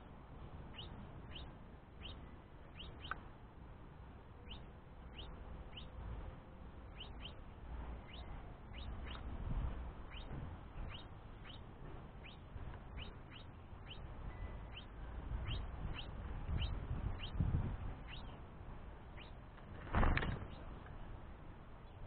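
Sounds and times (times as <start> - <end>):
finch chirping: 0.7 - 3.2, 4.4 - 6.1, 6.7 - 19.5, 20.4 - 20.7
wingbeats flurry: 19.7 - 20.7.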